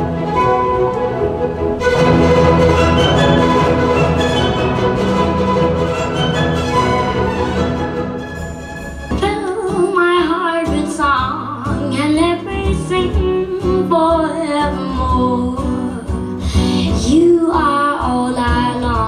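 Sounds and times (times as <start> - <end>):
acoustic guitar: 0.0 - 19.0.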